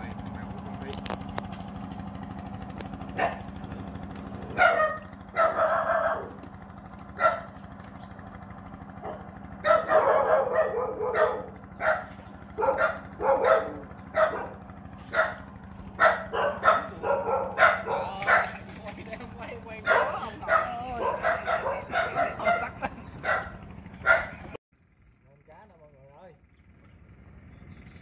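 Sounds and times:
steady low hum: 0:00.0 - 0:28.0
dog barking: 0:03.2 - 0:03.5, 0:04.5 - 0:06.4, 0:07.2 - 0:07.6, 0:09.0 - 0:18.7, 0:19.8 - 0:24.4.

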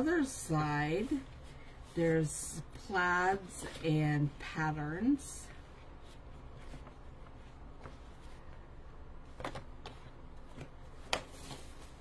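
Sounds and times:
paper rustling: 0:09.3 - 0:12.0.

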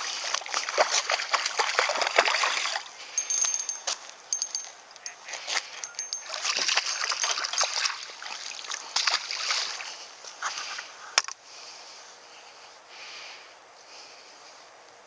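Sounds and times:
fish splashing in water: 0:00.0 - 0:03.0, 0:06.3 - 0:10.0.

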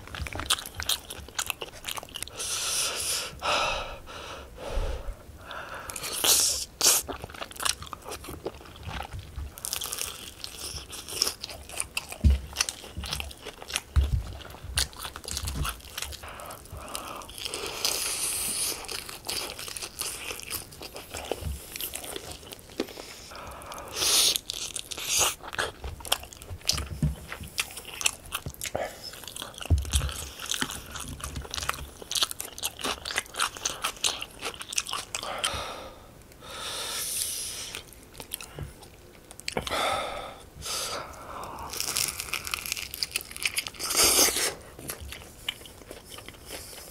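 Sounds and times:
chewing mouth sounds: 0:00.0 - 0:02.4, 0:23.8 - 0:35.4
crunchy bites into fried chicken: 0:41.7 - 0:46.1.

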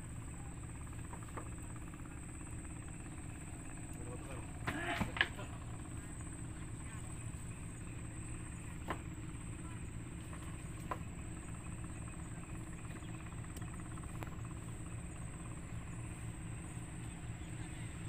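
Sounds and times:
low engine hum: 0:00.0 - 0:18.0
faint clicks: 0:13.5 - 0:14.4.

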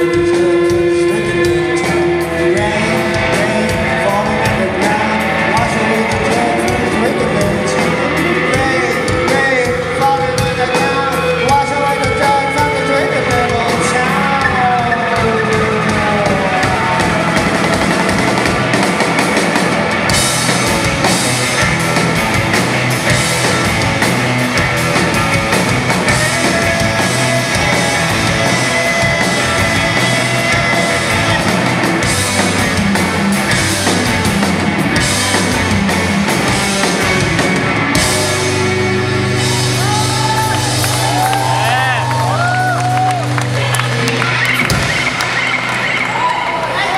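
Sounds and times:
man singing: 0:00.0 - 0:18.2, 0:25.1 - 0:33.2
live rock band playing: 0:00.0 - 0:46.9.

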